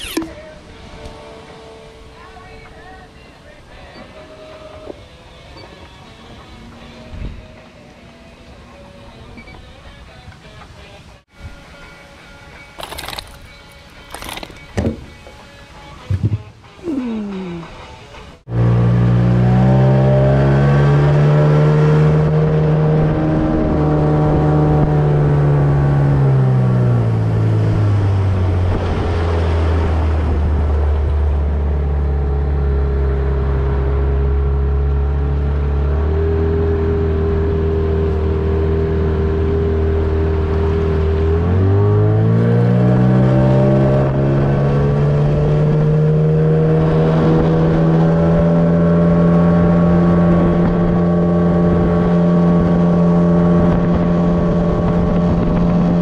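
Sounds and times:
outboard motor running: 0:12.8 - 0:15.1, 0:18.5 - 0:56.0.

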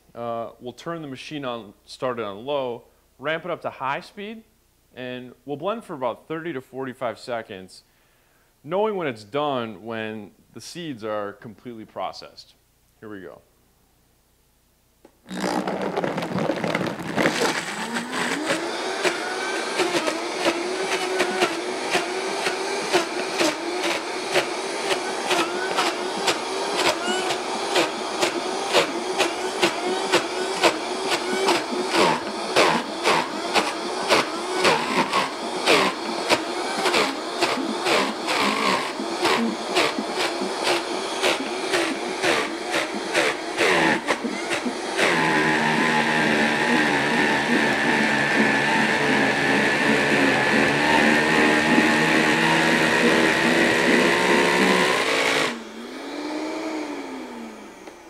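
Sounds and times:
blender motor running: 0:15.2 - 0:58.0.

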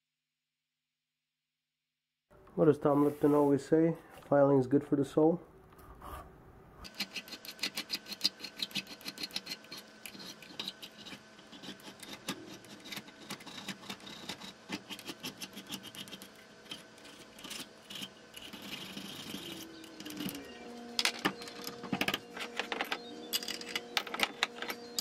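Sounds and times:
hand file rasping on metal: 0:06.8 - 0:20.3.

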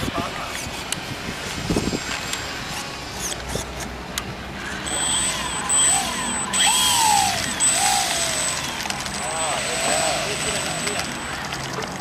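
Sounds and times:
high whine: 0:04.6 - 0:12.0
model plane motor revving: 0:04.8 - 0:11.3.

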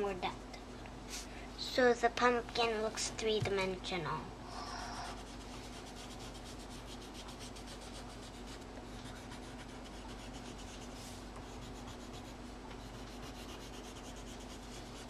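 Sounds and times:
pencil scratching on paper: 0:04.7 - 0:15.0.

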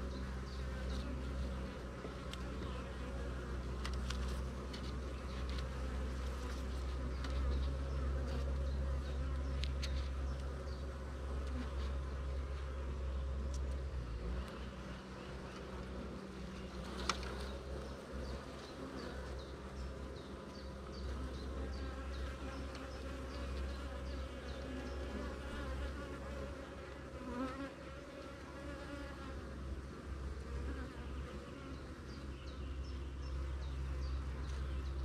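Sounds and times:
bees buzzing: 0:14.2 - 0:35.0.

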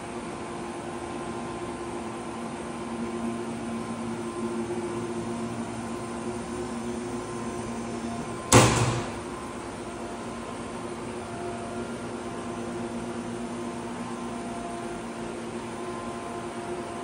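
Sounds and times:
steady shop hum: 0:00.0 - 0:17.0
metal cover slammed shut: 0:08.5 - 0:09.3.

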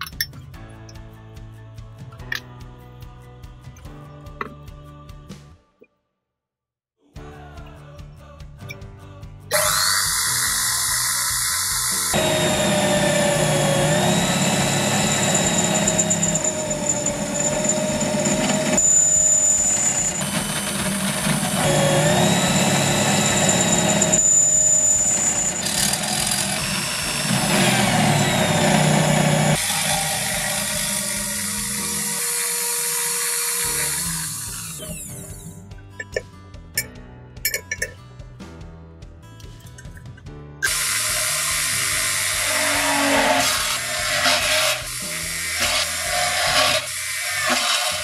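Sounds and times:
drill motor whining: 0:09.5 - 0:35.6, 0:40.6 - 0:48.0.

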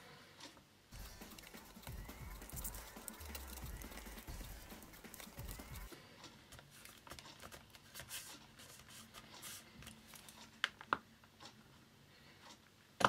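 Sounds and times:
screwdriver scratching and clicks: 0:01.0 - 0:05.9.

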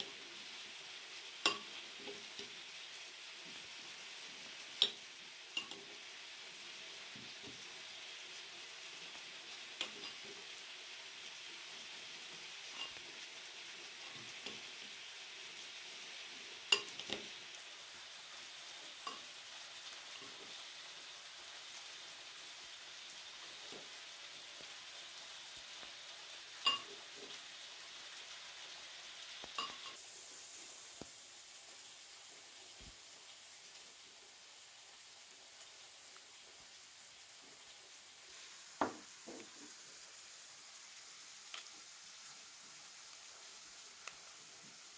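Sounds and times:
forks clinking on bowl: 0:29.6 - 0:30.0.

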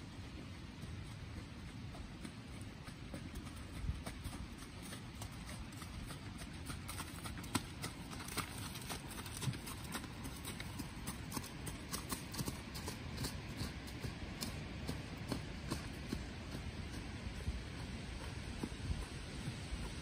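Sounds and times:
horse hoofbeats on dirt: 0:00.0 - 0:20.0.

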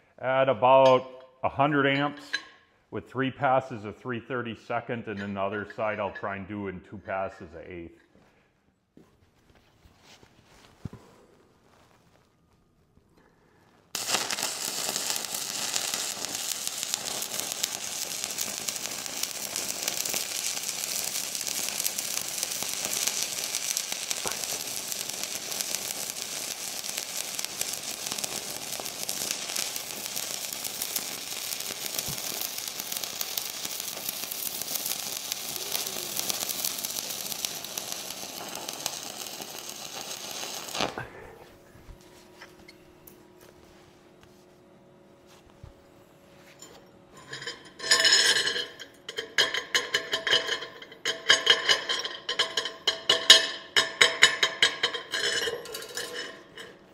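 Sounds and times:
welding arc crackling: 0:13.9 - 0:41.2, 0:47.2 - 0:56.9.

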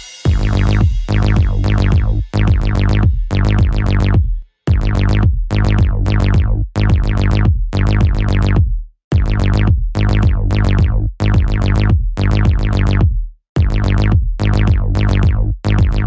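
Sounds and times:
house music chord stabs: 0:00.0 - 0:05.0
deep bass: 0:00.0 - 0:16.0.

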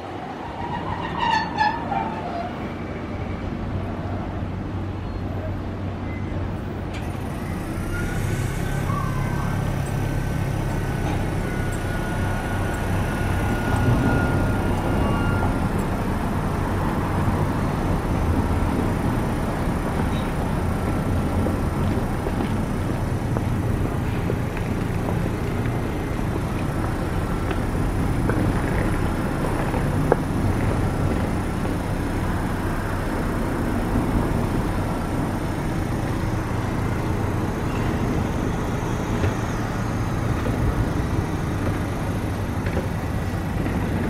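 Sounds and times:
tram equipment humming: 0:00.0 - 0:44.0
footsteps of passengers: 0:08.8 - 0:44.0.

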